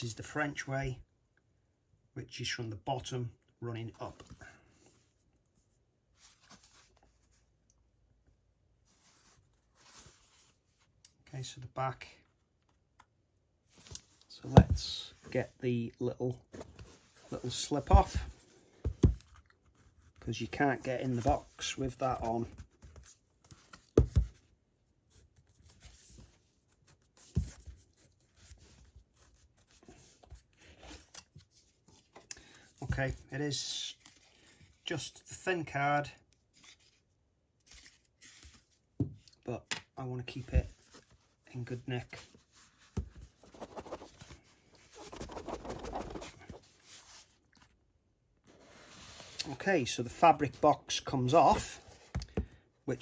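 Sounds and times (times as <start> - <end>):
cardboard scraping and rubbing: 42.1 - 47.4.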